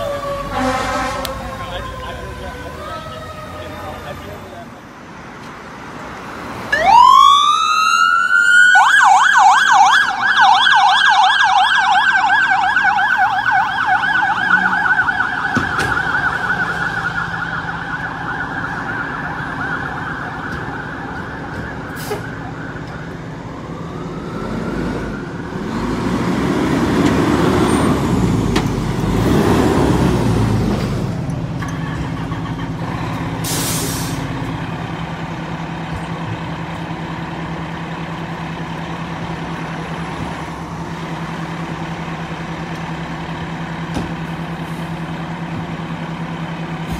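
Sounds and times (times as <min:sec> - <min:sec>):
fire engine diesel engine: 0:00.0 - 0:46.9
electronic siren wailing and yelping: 0:06.7 - 0:21.9.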